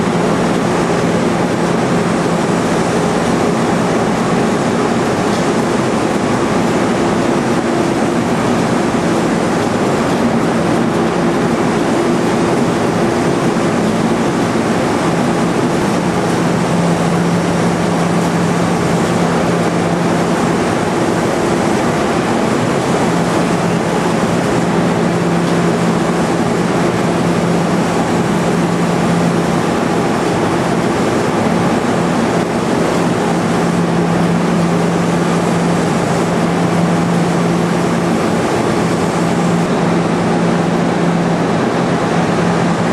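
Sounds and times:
electric motors and pumps running: 0:00.0 - 0:42.9
low machine hum: 0:00.0 - 0:42.9.

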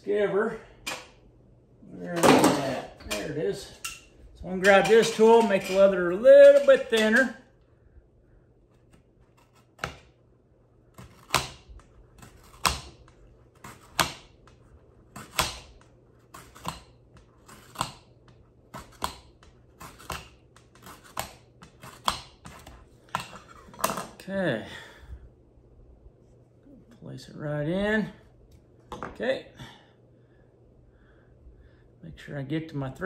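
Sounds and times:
blade scraping leather strap: 0:18.7 - 0:23.7.

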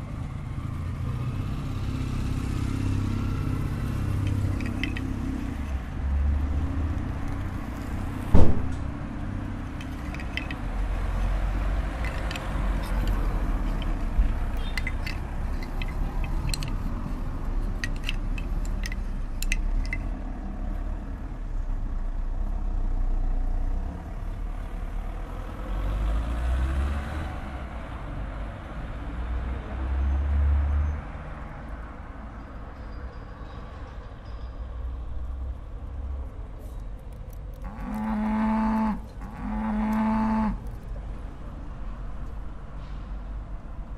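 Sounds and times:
cars passing: 0:00.0 - 0:33.0, 0:34.6 - 0:43.9
light clicks and jingles: 0:04.1 - 0:05.5, 0:09.6 - 0:20.2.

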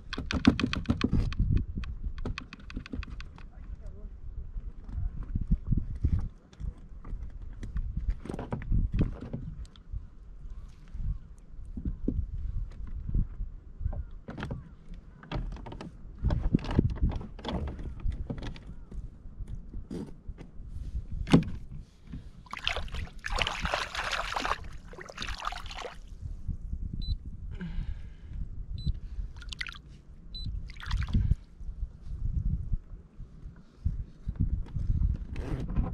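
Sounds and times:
gear knocking on plastic kayak: 0:00.0 - 0:03.4
wind rumble on microphone: 0:00.0 - 0:35.9.

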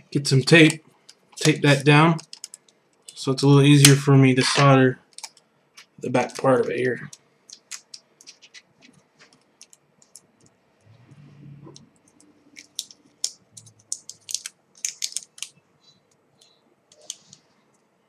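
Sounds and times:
adhesive tape crackling: 0:00.5 - 0:10.5, 0:11.7 - 0:17.4.

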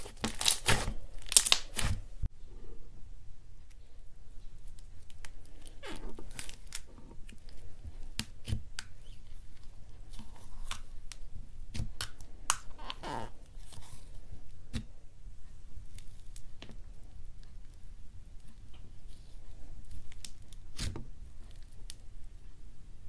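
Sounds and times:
slime squelch: 0:00.0 - 0:02.3.

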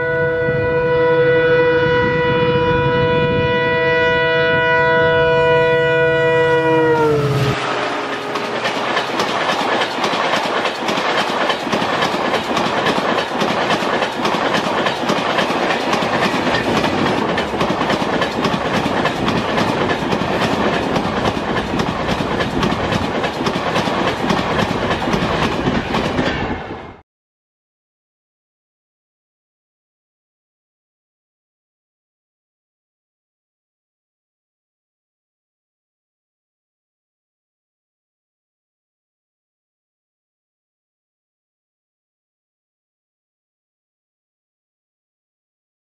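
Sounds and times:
train horn: 0:00.0 - 0:09.0
wheels clacking over rail joints: 0:07.6 - 0:26.6.

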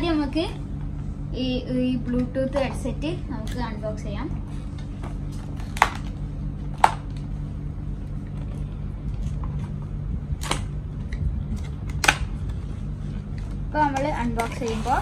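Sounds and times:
steady low hum: 0:00.0 - 0:15.0
cardboard packaging clicks and snaps: 0:05.1 - 0:07.3, 0:10.4 - 0:12.6.

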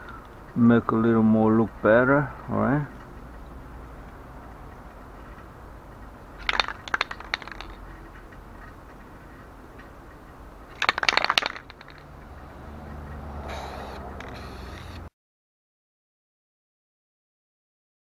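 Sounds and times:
spray can mixing ball rattling: 0:06.4 - 0:07.8, 0:10.8 - 0:12.0, 0:13.5 - 0:15.0.

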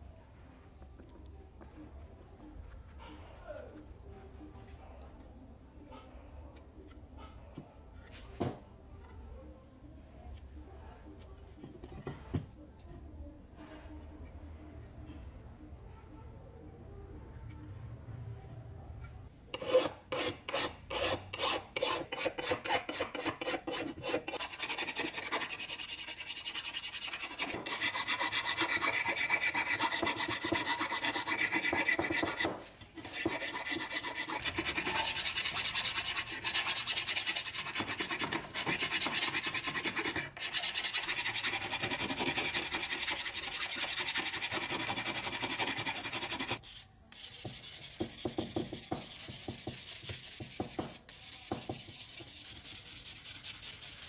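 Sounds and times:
hand file rasping on filler: 0:19.6 - 0:54.0
sandpaper rubbing: 0:19.6 - 0:54.0.

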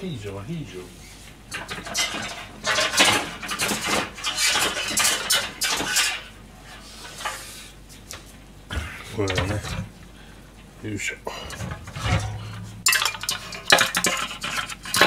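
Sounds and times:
metal kitchenware clattering: 0:01.5 - 0:06.4, 0:09.2 - 0:09.9, 0:11.3 - 0:15.0.

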